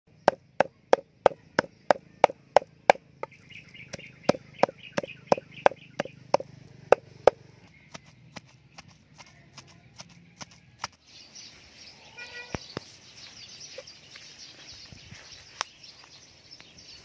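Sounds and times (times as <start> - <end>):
cleaver chopping on wooden block: 0.1 - 11.0
faint chirping: 0.1 - 17.0.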